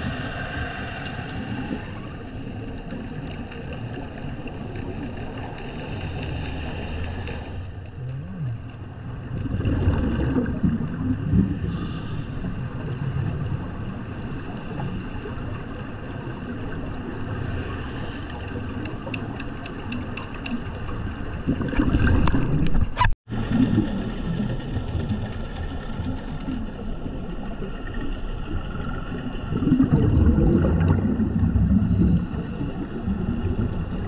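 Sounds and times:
exhaled bubbles rumbling: 0.0s - 34.0s
regulator inhale hiss: 11.6s - 12.6s, 31.7s - 32.8s.

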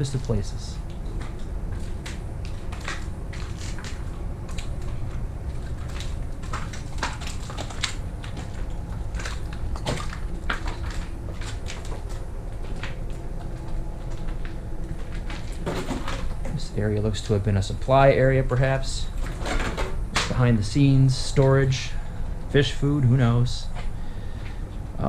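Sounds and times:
footsteps crunching over rubble: 0.0s - 17.4s
steady low rumble: 0.0s - 25.0s.

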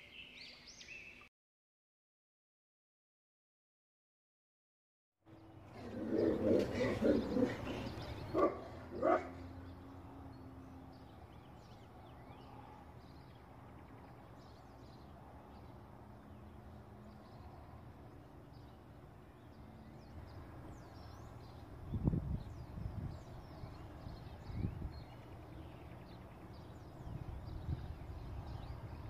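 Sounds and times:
small birds chirping: 0.0s - 1.3s, 5.3s - 29.0s
dog barking: 6.2s - 9.4s.

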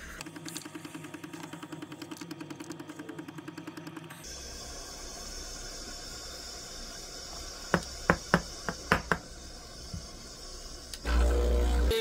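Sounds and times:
espresso steam wand hissing: 4.2s - 12.0s.

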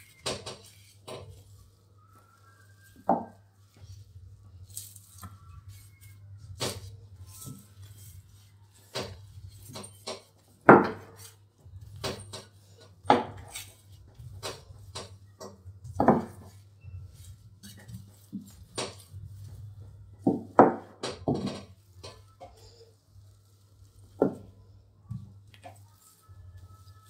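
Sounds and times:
plastic wrap crinkling: 0.0s - 10.5s, 21.7s - 27.0s
rolling pin knocking: 15.8s - 16.6s.

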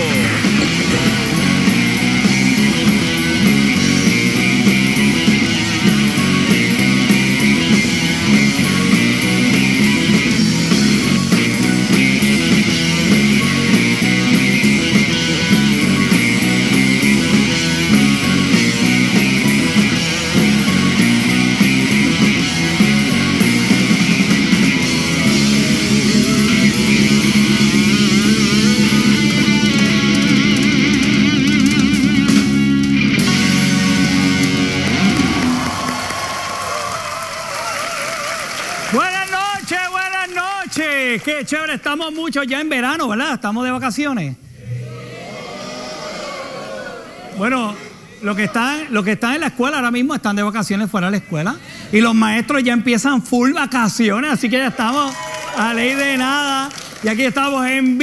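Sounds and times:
guitar-driven rock music: 0.0s - 36.7s.

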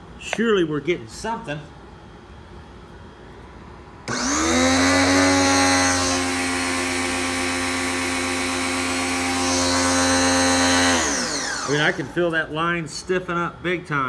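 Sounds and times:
pressure washer motor whine: 4.1s - 12.4s.

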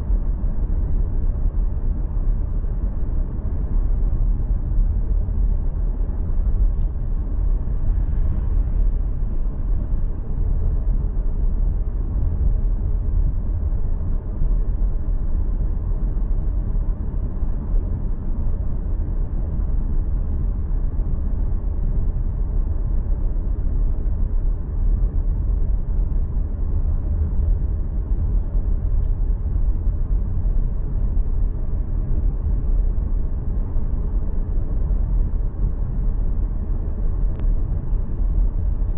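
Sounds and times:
vehicle tyre and wind noise: 0.0s - 38.9s.

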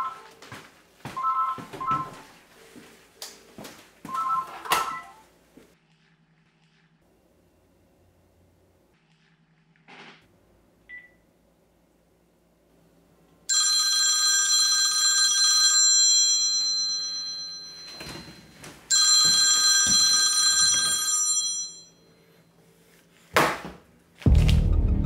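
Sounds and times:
phone ringtone bell chord: 13.5s - 22.3s.

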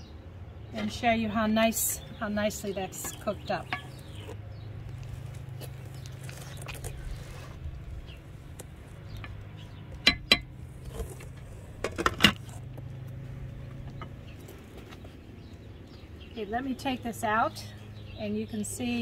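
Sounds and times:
clinks against a pot: 3.0s - 4.4s, 10.0s - 10.6s.

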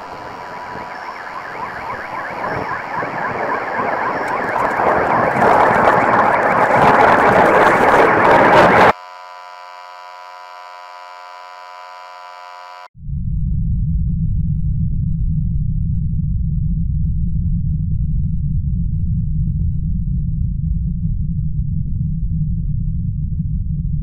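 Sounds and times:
rapid repeated chirping: 0.0s - 4.8s
static and distortion noise: 0.0s - 12.9s
steady electronic buzz: 0.0s - 12.9s.

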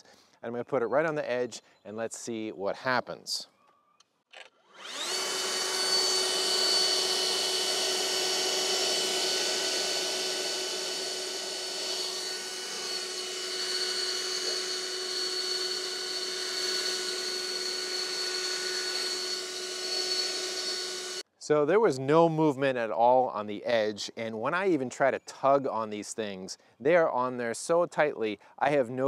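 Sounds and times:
leaf blower whining: 4.6s - 21.2s.

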